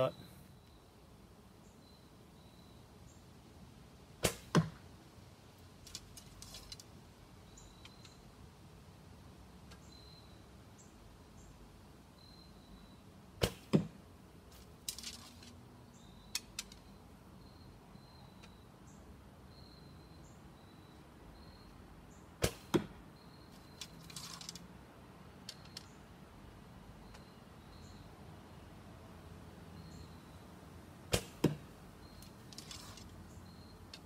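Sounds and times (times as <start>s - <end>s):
arrow striking target: 4.2s - 4.8s, 13.4s - 14.0s, 22.4s - 23.0s, 31.1s - 31.7s
faint high chirps: 12.2s - 13.1s, 16.0s - 21.8s, 27.0s - 28.2s, 32.0s - 33.9s
brief rustles: 32.5s - 33.1s.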